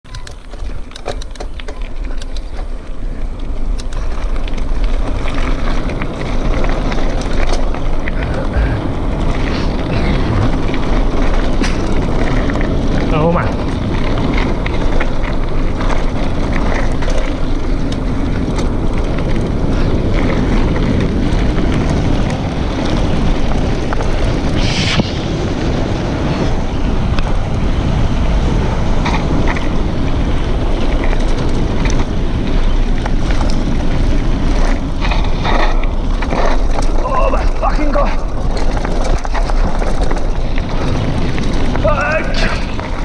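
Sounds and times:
bike rattles and knocks: 0.0s - 24.6s, 25.3s - 43.0s
tyres crunching on gravel: 0.0s - 43.0s
wind noise on microphone: 0.0s - 43.0s
brief hiss: 24.6s - 25.3s.

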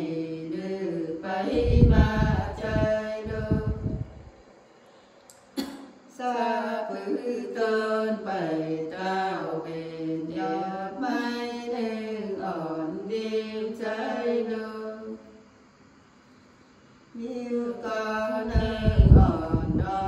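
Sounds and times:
women singing: 0.0s - 4.1s, 6.2s - 15.2s, 17.2s - 20.0s.

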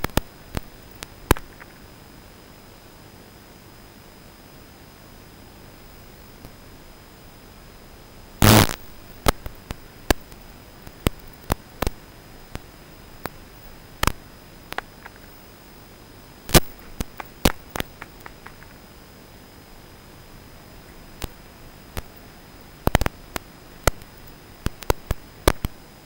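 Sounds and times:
sharp clicks and pops: 0.0s - 1.9s, 8.4s - 13.4s, 14.0s - 15.4s, 16.5s - 18.9s, 21.2s - 22.2s, 22.8s - 25.8s
static hiss: 0.0s - 26.0s.

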